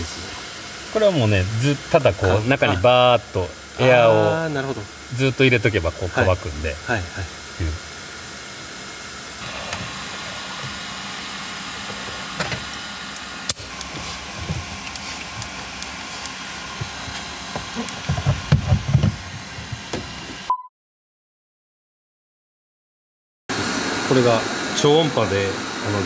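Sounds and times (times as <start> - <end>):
compressed air hissing: 0.0 - 20.5.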